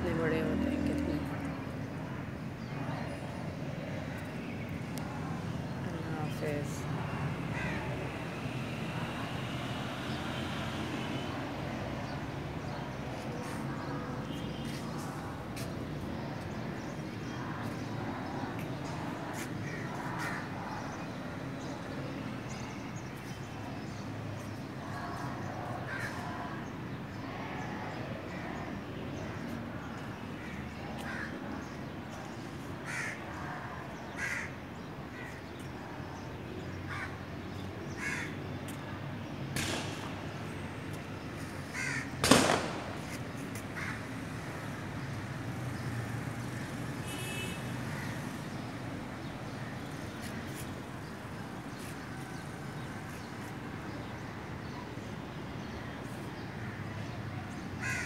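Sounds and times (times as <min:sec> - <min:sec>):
outdoor background noise: 0:00.0 - 0:58.0
crows cawing: 0:07.5 - 0:07.9, 0:19.6 - 0:20.5, 0:25.9 - 0:26.2, 0:32.8 - 0:33.3, 0:34.1 - 0:35.4, 0:36.9 - 0:37.2, 0:37.9 - 0:38.4, 0:41.7 - 0:42.2, 0:43.8 - 0:44.1, 0:57.8 - 0:58.0.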